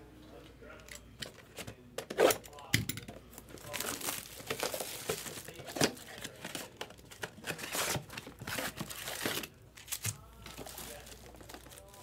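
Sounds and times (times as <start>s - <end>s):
plastic wrap crackling and tearing: 3.3s - 12.0s.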